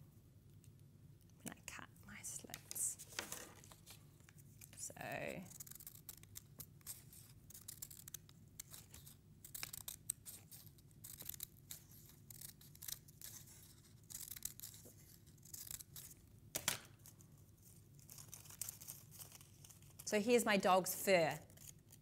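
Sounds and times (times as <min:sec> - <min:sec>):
scissors snipping paper: 0:04.6 - 0:17.2, 0:18.0 - 0:20.1, 0:21.4 - 0:22.0.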